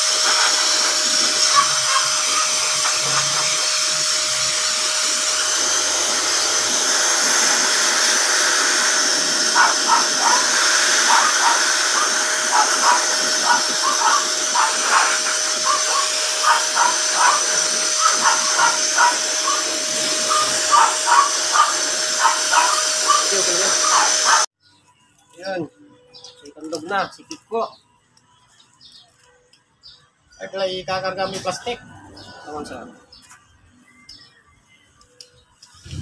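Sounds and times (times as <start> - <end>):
blower dryer whining: 0.0 - 24.6, 35.7 - 36.0.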